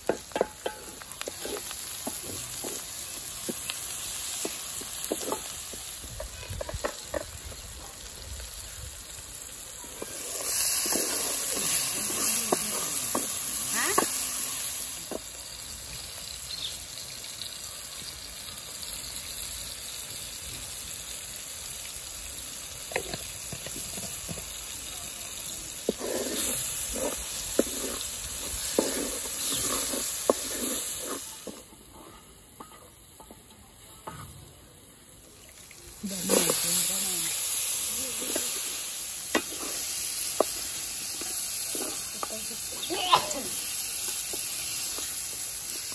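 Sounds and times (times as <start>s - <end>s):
wooden spatula scraping a pot: 0.0s - 7.6s, 9.8s - 15.2s, 25.7s - 33.4s, 36.1s - 45.9s
vegetables sizzling in oil: 0.0s - 45.9s.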